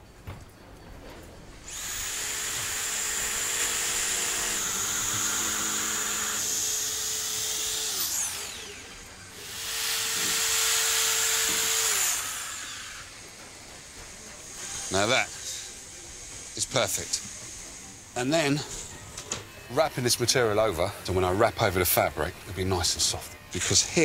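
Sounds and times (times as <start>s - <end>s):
electric knife motor whining: 1.6s - 13.3s.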